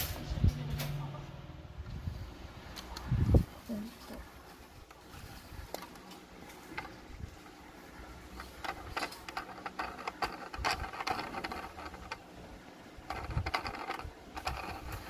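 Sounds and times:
toy car handling clicks and taps: 0:08.4 - 0:12.2.

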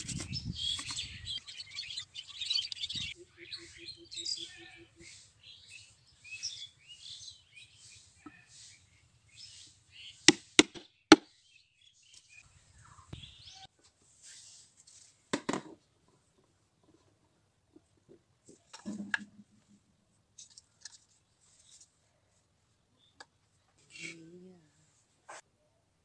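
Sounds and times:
small birds chirping: 0:00.1 - 0:13.7.

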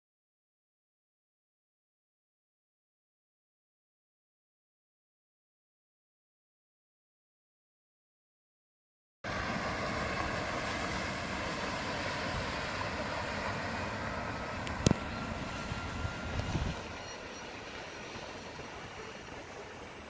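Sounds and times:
steady rushing outdoor noise: 0:09.2 - 0:20.0.

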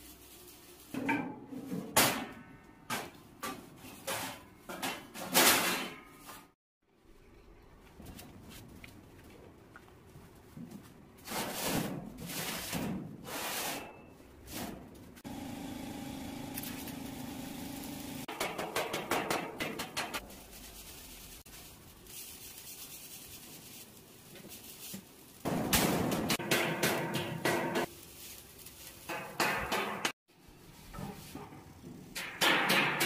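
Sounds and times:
welding arc crackling: 0:15.2 - 0:18.3
steady hum: 0:15.3 - 0:18.3.

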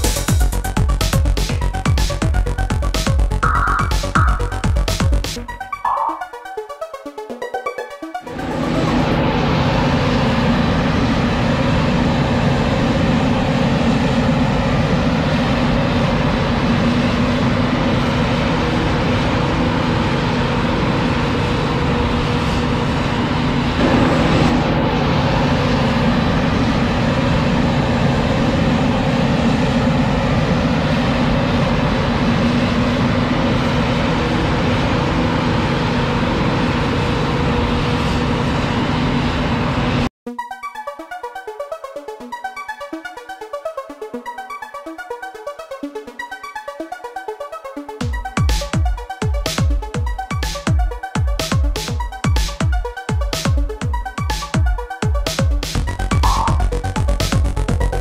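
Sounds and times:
forage harvester droning: 0:08.2 - 0:40.0.

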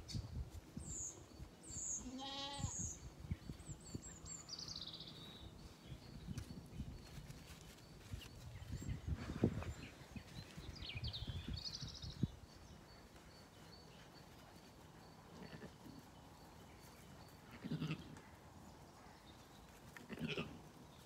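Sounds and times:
lamb bleating: 0:02.0 - 0:02.9, 0:20.1 - 0:20.6.

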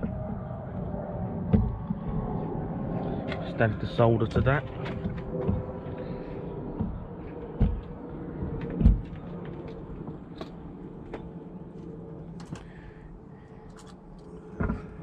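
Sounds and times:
low thumps: 0:00.0 - 0:03.4, 0:04.2 - 0:06.1, 0:06.7 - 0:09.2
steady low hum: 0:00.0 - 0:15.0
clicks of handling wires and tools: 0:12.4 - 0:12.7.

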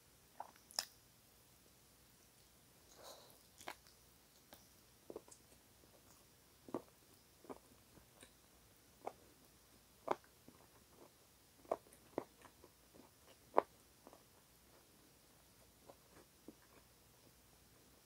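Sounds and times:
chewing meat: 0:02.9 - 0:08.4, 0:10.0 - 0:14.9.

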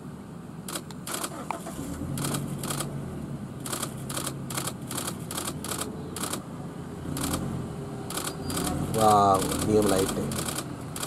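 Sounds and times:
vehicle engine idling: 0:00.0 - 0:11.0
camera shutters clicking: 0:00.7 - 0:01.5, 0:03.6 - 0:06.4, 0:08.1 - 0:11.0.

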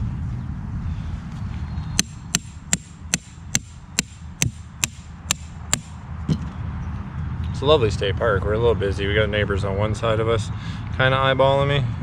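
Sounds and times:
hammer driving stake into ground: 0:02.0 - 0:06.5.

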